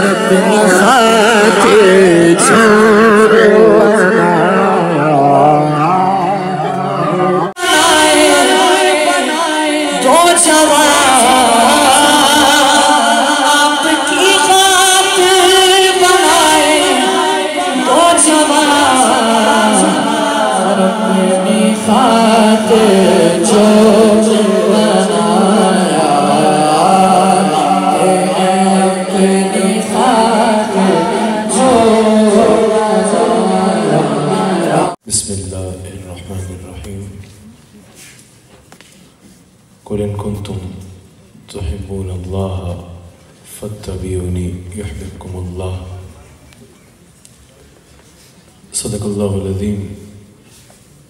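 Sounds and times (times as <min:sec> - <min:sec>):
man singing into a microphone: 0:00.0 - 0:35.1.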